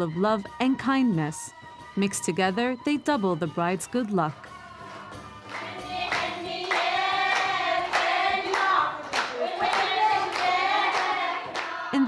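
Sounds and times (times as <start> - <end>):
women singing together: 4.1 - 12.0
steady hand-clapping: 4.3 - 12.0.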